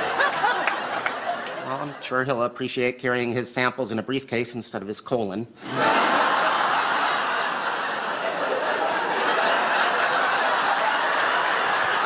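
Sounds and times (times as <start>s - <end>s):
audience laughing: 0.0s - 2.3s, 5.6s - 12.0s.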